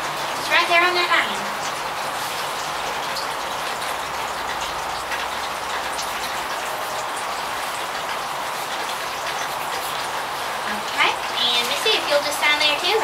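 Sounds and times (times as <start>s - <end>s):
rain hissing: 0.0s - 13.0s.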